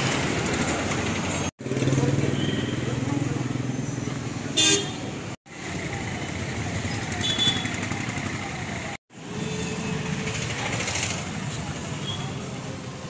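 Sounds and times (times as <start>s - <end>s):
traffic rumble: 0.0s - 13.0s.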